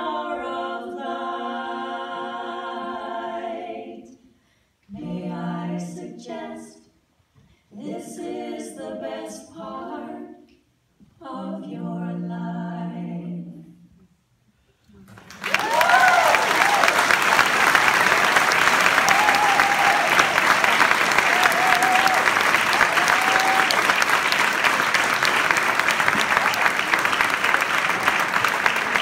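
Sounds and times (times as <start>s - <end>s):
women singing a cappella: 0.0s - 4.3s, 4.9s - 7.0s, 7.7s - 14.0s
audience applauding and cheering: 15.0s - 29.0s.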